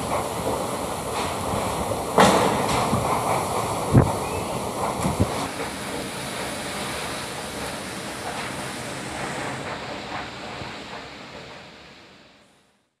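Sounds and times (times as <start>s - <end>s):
wind rushing: 0.0s - 5.6s
rain: 0.0s - 12.8s.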